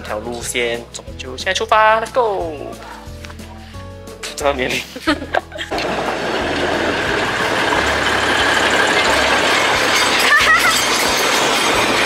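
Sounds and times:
diesel locomotive engine running: 0:05.6 - 0:12.0.

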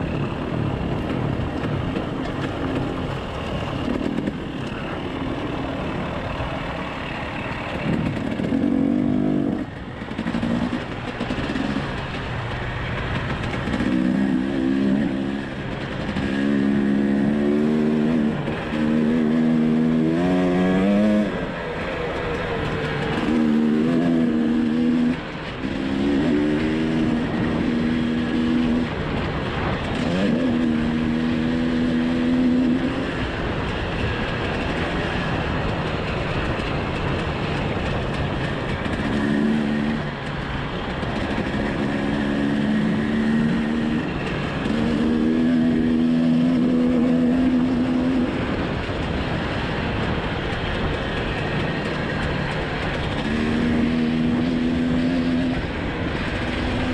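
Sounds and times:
steady rushing noise: 0:00.0 - 0:56.9
dirt bike engine revving: 0:07.7 - 0:12.1, 0:13.1 - 0:21.6, 0:22.9 - 0:33.2, 0:38.8 - 0:40.2, 0:41.0 - 0:48.5, 0:53.0 - 0:56.9.

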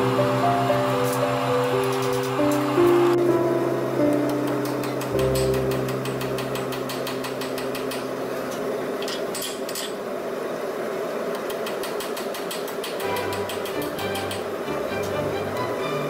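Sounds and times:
hammer striking metal on anvil: 0:04.2 - 0:10.0, 0:11.8 - 0:15.2.

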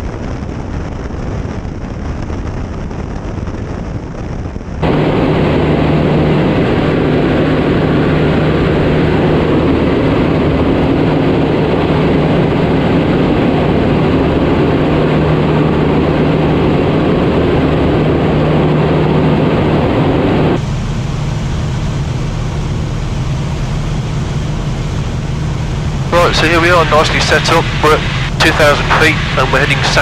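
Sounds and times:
aircraft engine and propeller droning: 0:02.0 - 0:30.0.

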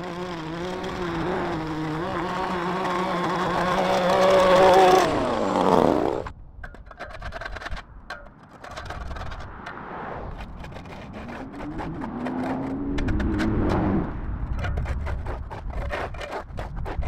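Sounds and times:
small edger engine winding down: 0:00.0 - 0:06.3, 0:10.7 - 0:13.7
tool scraping concrete: 0:00.0 - 0:17.0
passing vehicle: 0:08.8 - 0:15.4.

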